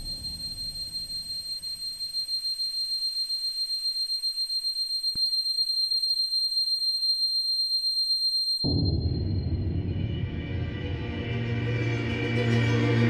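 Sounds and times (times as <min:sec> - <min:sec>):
low rumble: 0:08.7 - 0:13.0.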